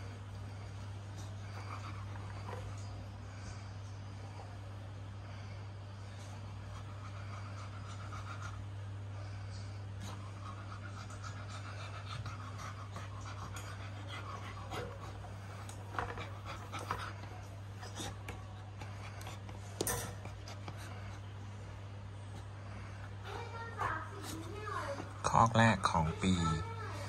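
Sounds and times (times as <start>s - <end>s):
steady low hum: 0.0s - 27.0s
dog panting fast: 9.7s - 21.3s.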